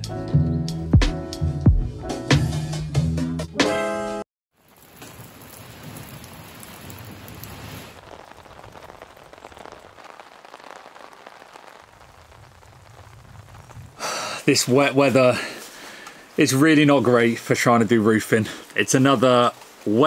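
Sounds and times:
rain falling on leaves: 4.5s - 20.0s.

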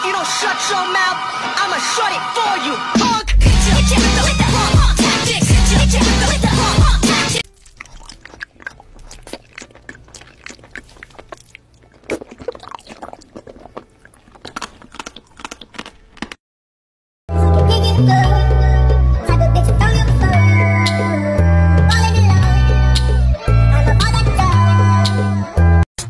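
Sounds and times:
loud music: 0.0s - 7.4s
crisp crunching and chewing: 7.4s - 16.4s.

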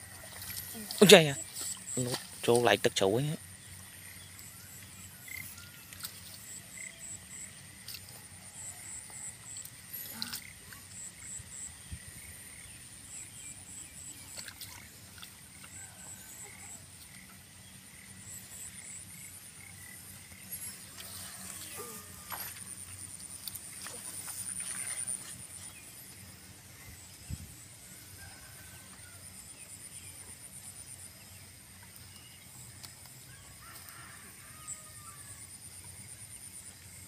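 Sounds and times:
hands squelching in mud and water: 0.0s - 2.7s, 14.1s - 16.7s, 20.8s - 25.9s.

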